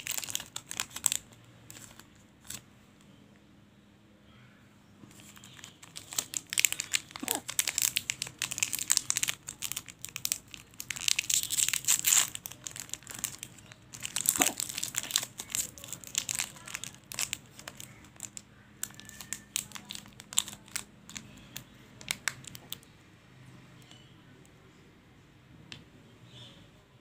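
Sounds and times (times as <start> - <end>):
wrapper and foil crinkling: 0.0 - 2.6, 5.1 - 22.8
sharp wrapper rip: 5.1 - 13.4, 14.0 - 20.9.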